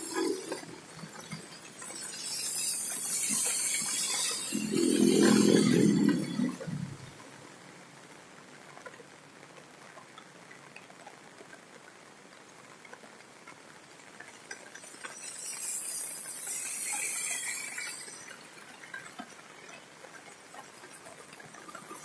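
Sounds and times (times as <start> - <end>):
tyres hissing on wet road: 0.0 - 8.8, 12.8 - 22.0
rain pattering on street: 0.0 - 22.0
scattered drips: 8.6 - 22.0.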